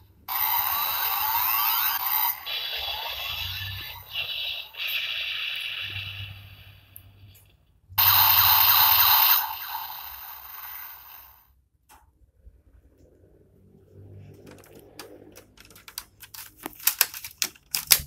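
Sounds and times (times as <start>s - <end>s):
harsh electronic burst: 0.3s - 6.9s, 8.0s - 11.5s
toy belt electronic sound effects: 0.3s - 7.0s, 8.0s - 11.4s.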